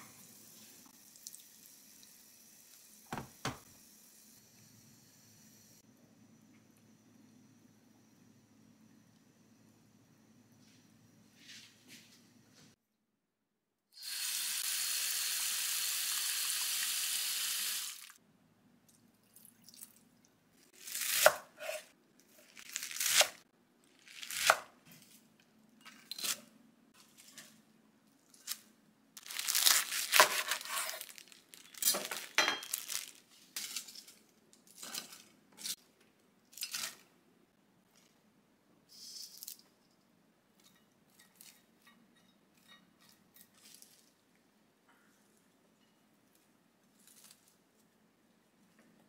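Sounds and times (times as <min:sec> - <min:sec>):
kitchen tap running: 0:01.1 - 0:03.8
cabbage leaves rustling and crackling: 0:29.2 - 0:34.1.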